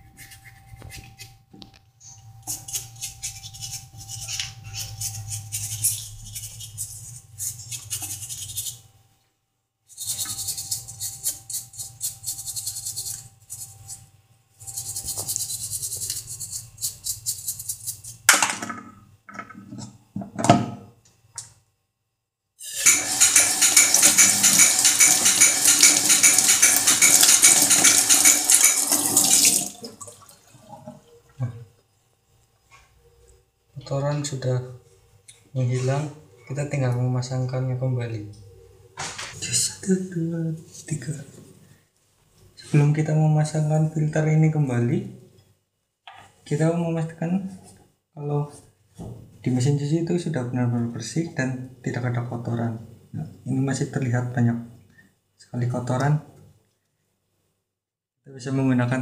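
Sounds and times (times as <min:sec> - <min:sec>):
toothbrush scrubbing filter screen: 0:02.5 - 0:08.8, 0:09.9 - 0:18.3.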